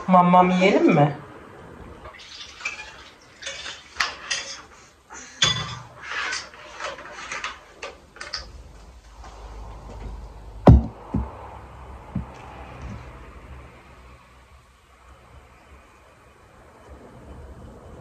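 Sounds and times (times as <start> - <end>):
sharp knock: 10.7 - 11.3.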